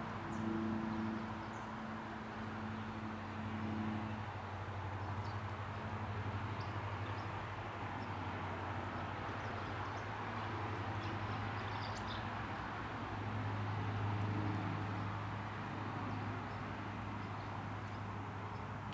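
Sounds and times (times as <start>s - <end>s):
distant traffic rumble: 0.0s - 18.9s
small birds chirping: 10.9s - 12.3s.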